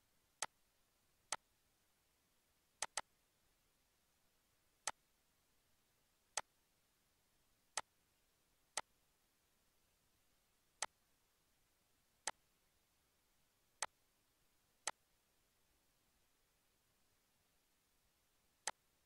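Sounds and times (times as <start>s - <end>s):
computer mouse clicks: 2.8s - 3.1s.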